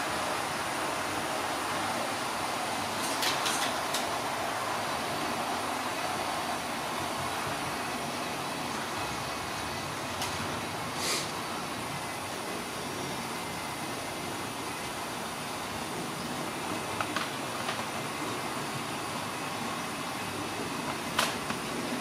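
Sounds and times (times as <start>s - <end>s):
model train motors whirring: 0.0s - 22.0s
brief hiss: 10.9s - 11.4s.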